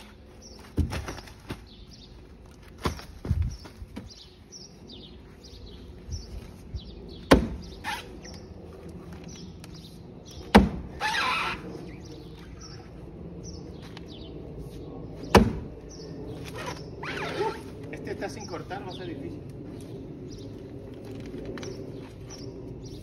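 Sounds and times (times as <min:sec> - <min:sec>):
small birds chirping: 0:00.0 - 0:23.0
axe striking palm trunk: 0:07.3 - 0:07.6, 0:10.5 - 0:10.9, 0:15.3 - 0:15.7.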